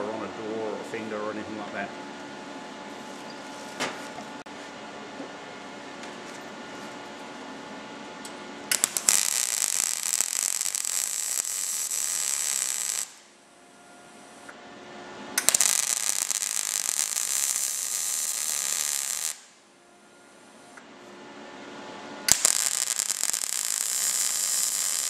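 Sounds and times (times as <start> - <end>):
welder sharp pops: 8.7 - 13.2, 15.4 - 19.5, 22.3 - 25.0
welder arc crackling: 8.7 - 13.3, 15.4 - 19.6, 22.3 - 25.0.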